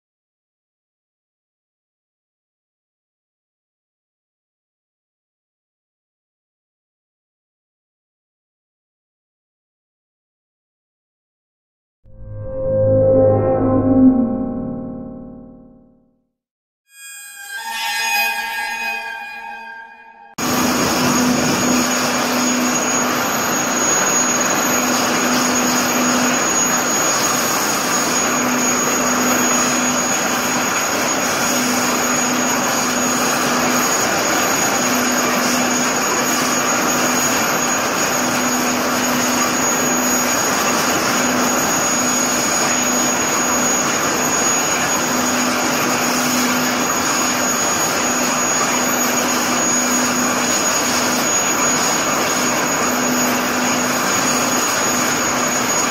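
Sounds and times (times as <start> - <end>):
low hum: 12.1 - 16.0.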